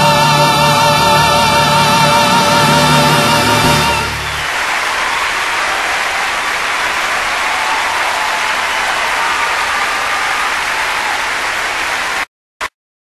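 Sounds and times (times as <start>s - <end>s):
audience applauding: 3.1s - 12.3s.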